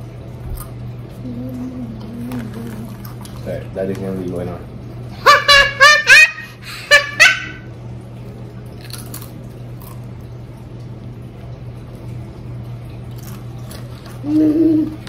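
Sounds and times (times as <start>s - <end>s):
child chewing chip: 0.5s - 4.0s, 8.7s - 10.4s, 12.9s - 15.0s
child laughing: 5.2s - 7.7s, 14.2s - 15.0s.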